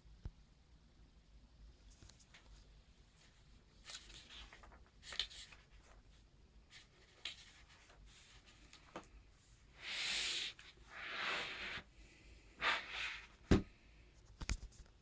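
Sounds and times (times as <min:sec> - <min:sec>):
comic book pages turning: 0:03.2 - 0:06.1, 0:06.7 - 0:09.1.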